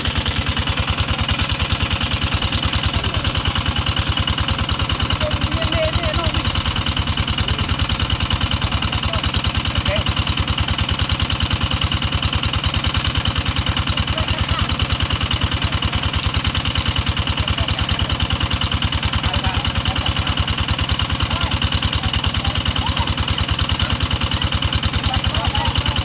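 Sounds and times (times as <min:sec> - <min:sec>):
small engine water pump chugging: 0:00.0 - 0:26.0.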